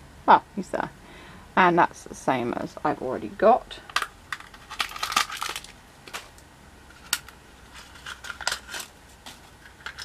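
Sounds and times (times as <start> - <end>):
packaging crackling rustle: 4.0 - 10.0.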